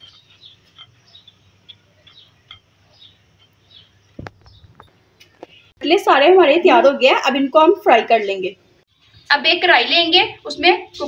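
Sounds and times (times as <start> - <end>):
small birds chirping: 0.0 - 5.8, 8.2 - 11.0.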